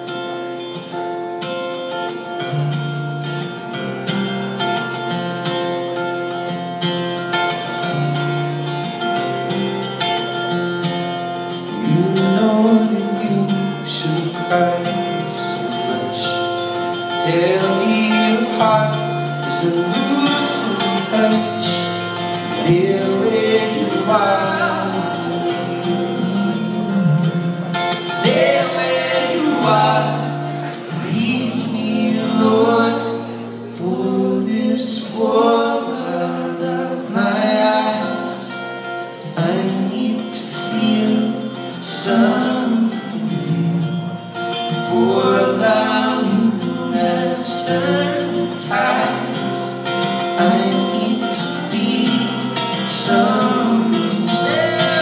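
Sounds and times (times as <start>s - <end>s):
acoustic guitar chords: 0.0s - 55.0s
men singing in harmony: 17.2s - 38.5s, 39.2s - 43.9s, 44.7s - 55.0s.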